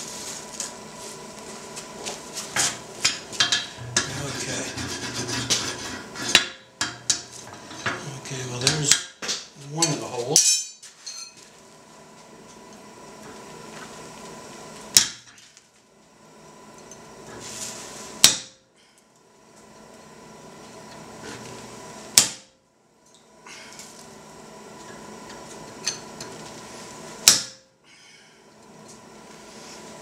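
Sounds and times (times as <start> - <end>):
hammer striking chisel on anvil: 14.9 - 15.3, 18.2 - 18.6, 22.2 - 22.5, 27.2 - 27.6.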